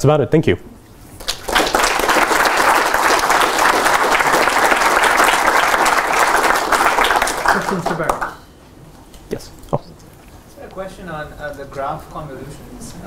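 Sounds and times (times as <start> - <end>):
audience applauding: 1.2 - 8.4.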